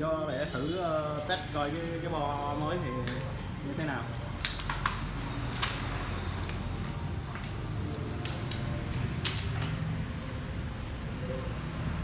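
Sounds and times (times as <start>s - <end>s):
clicks and knocks of handled cables: 4.1s - 9.9s.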